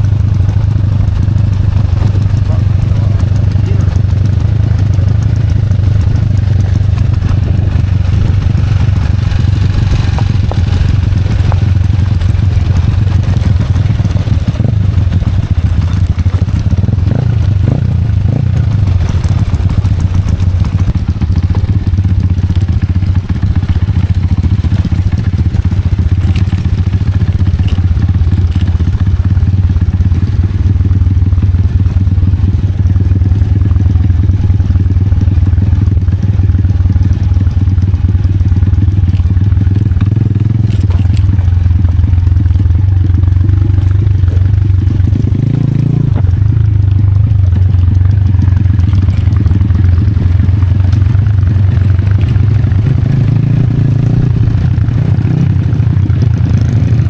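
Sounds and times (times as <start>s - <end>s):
small motorcycle engine running: 0.0s - 57.0s
knocks and rattles from bumps: 39.1s - 41.8s.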